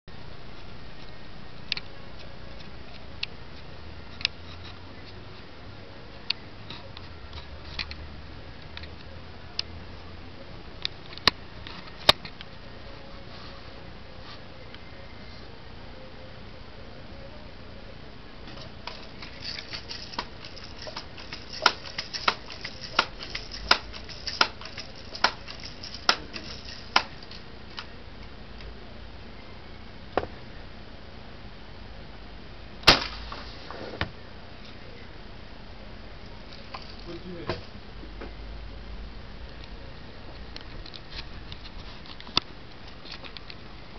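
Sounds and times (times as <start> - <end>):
bb gun shot hitting can: 21.6 - 24.6, 32.8 - 33.5
bb gun shots: 32.8 - 33.5.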